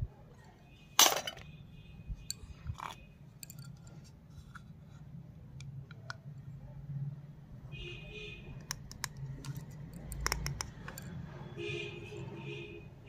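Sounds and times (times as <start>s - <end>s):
toy piece clinking on concrete: 2.3s - 3.9s, 8.7s - 11.2s
plastic toy clicks and taps: 8.6s - 11.1s.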